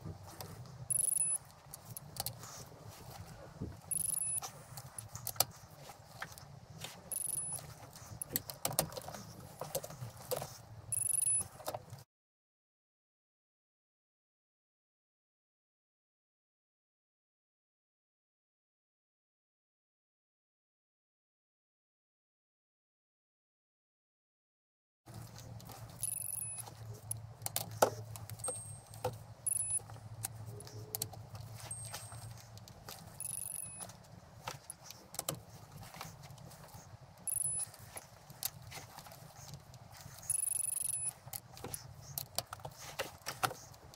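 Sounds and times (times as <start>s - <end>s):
metal socket clinks: 0.9s - 1.4s, 3.9s - 4.4s, 7.1s - 7.6s, 10.9s - 11.4s, 26.0s - 27.2s, 28.3s - 29.9s, 33.2s - 33.9s, 37.3s - 37.6s, 40.3s - 41.1s
torque wrench beeping: 0.9s - 2.0s, 3.9s - 4.5s, 7.1s - 7.6s, 10.9s - 11.5s, 26.0s - 27.2s, 28.4s - 29.9s, 33.1s - 33.9s, 37.3s - 37.7s, 40.2s - 41.2s
ratchet clicks: 0.9s - 2.3s, 3.9s - 4.4s, 7.1s - 7.6s, 10.9s - 11.4s, 26.0s - 31.1s, 33.2s - 33.9s, 37.3s - 37.6s, 40.3s - 41.5s.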